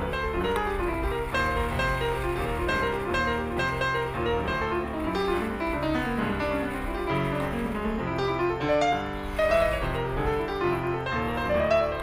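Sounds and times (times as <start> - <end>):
piano held notes: 0.0 - 12.0.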